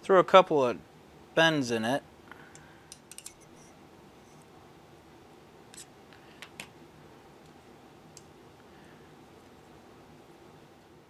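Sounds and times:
faint clicks of metal bending: 2.4s - 3.5s.

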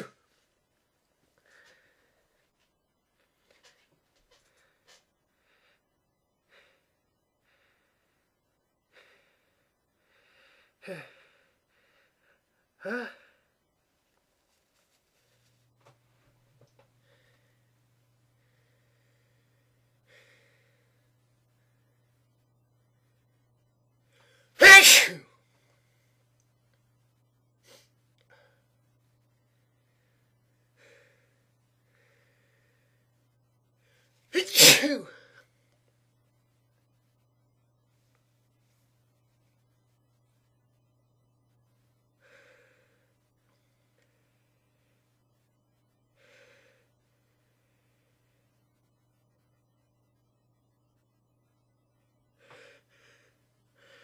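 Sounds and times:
person gasping before sneeze: 24.2s - 25.3s, 34.4s - 35.4s
person's sharp in-breaths: 46.2s - 47.0s.

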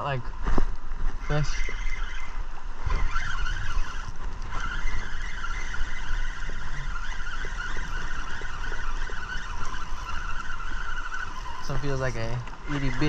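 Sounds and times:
boat motor running: 0.0s - 13.0s
wind buffeting microphone: 0.0s - 13.0s
faint ticks: 3.3s - 12.9s.

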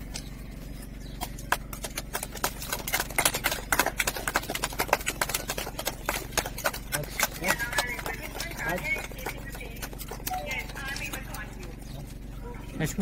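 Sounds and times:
people clapping: 1.4s - 11.7s.

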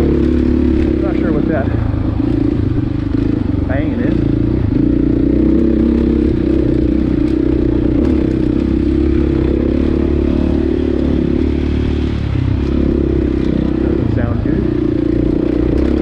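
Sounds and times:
dirt bike engine running: 0.0s - 16.0s.

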